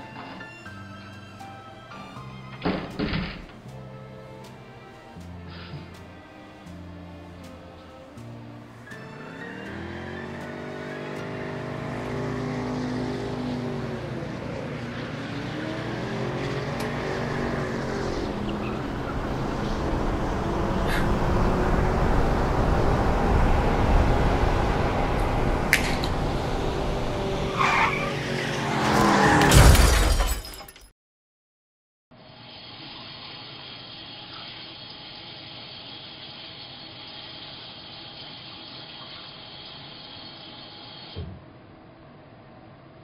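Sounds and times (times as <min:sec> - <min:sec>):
car approaching: 0:00.0 - 0:29.6
tyres squealing: 0:07.5 - 0:22.6, 0:24.0 - 0:29.5.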